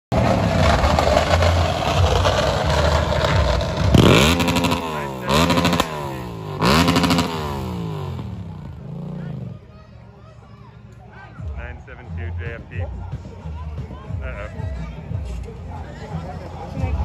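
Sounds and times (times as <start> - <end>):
vehicle engine revving: 0.1 - 9.7.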